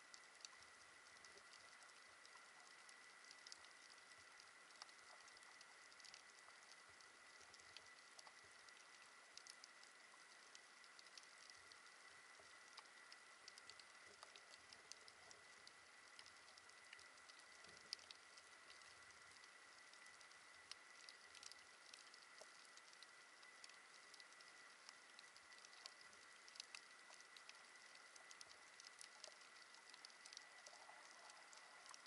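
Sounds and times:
snapping shrimp clicks underwater: 0.0 - 32.0.

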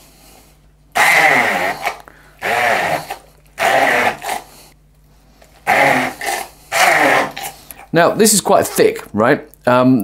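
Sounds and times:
stick blender pulsing: 0.9 - 4.7, 5.4 - 8.9.

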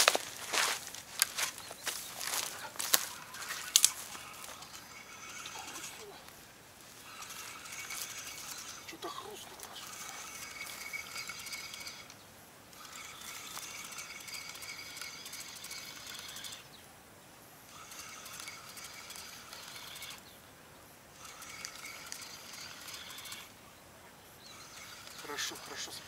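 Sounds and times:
spinning reel clicking whir: 2.9 - 6.3, 7.0 - 16.7, 17.7 - 20.3, 21.2 - 23.6, 24.4 - 26.0.

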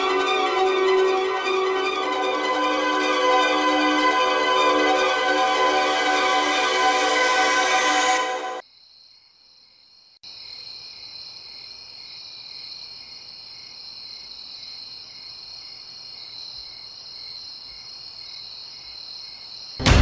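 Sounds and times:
loud music: 0.0 - 8.6, 19.8 - 20.0
crickets trilling and chirping: 8.6 - 19.8.

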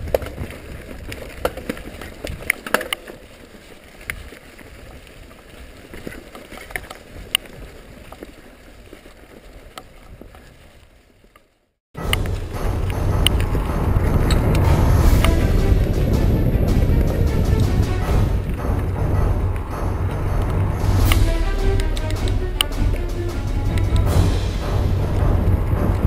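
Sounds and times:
bike tyres crunching over stones: 0.0 - 15.1
bike rattling and clacking: 0.0 - 21.2
low rush: 12.0 - 26.0.

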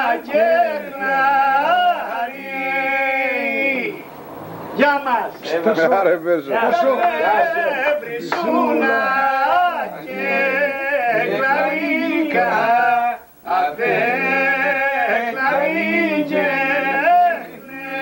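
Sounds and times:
man singing unaccompanied: 0.0 - 18.0.

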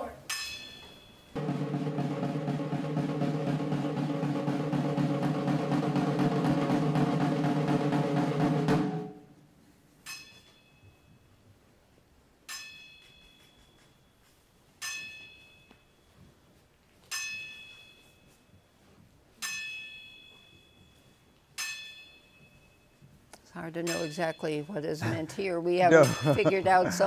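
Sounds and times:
snare drum roll: 1.4 - 9.3
ringing metallic strikes: 26.0 - 26.7.

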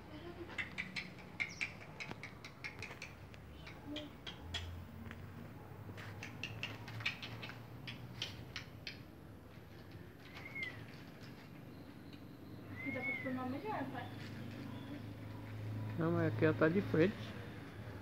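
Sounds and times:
parrots chattering: 0.3 - 4.9.

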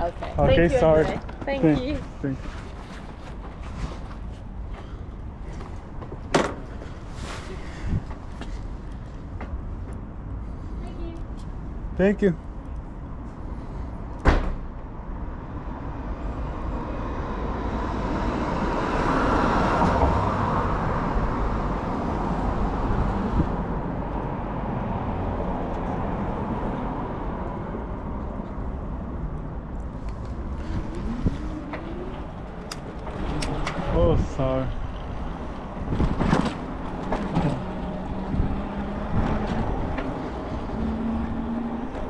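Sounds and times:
road traffic noise: 0.0 - 42.0
vehicle passing close by: 15.4 - 28.2, 30.2 - 42.0.

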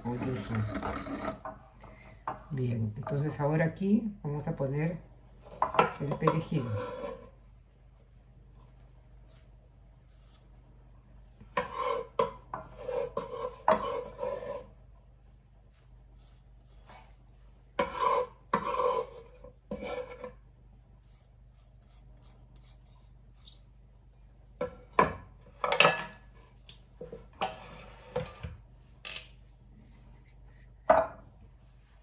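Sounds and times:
knife scraping and tapping on board: 11.5 - 14.7, 17.8 - 20.4.

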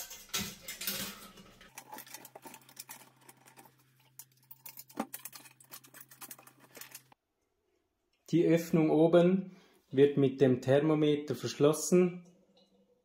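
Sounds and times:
wire twisting ticks and scratches: 0.0 - 7.2.

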